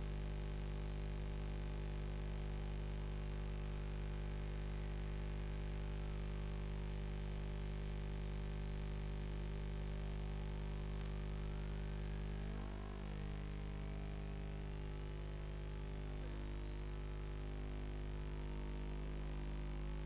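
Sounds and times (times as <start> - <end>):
electrical hum with static hiss: 0.0 - 20.0.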